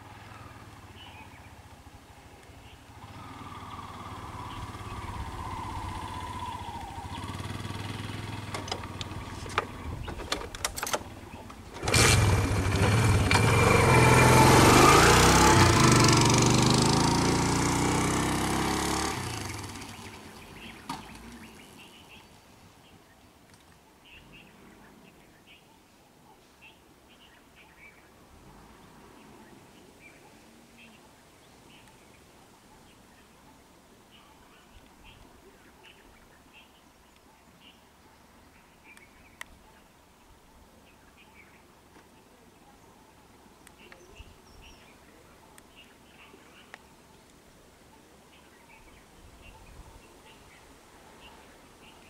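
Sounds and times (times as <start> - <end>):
faint vehicle engine: 0.0 - 22.3
loud vehicle engine close by: 2.9 - 9.9, 11.8 - 21.6.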